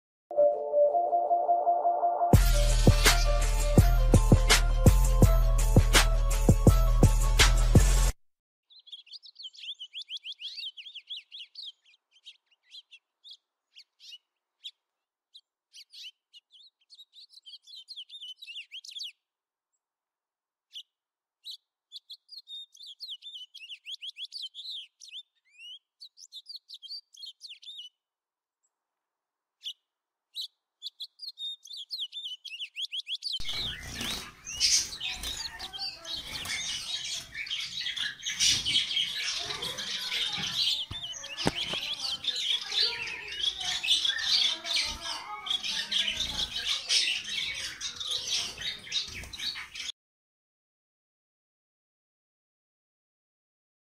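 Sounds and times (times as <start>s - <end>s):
finches chirping: 8.7s - 19.2s, 20.7s - 28.0s, 29.6s - 49.9s.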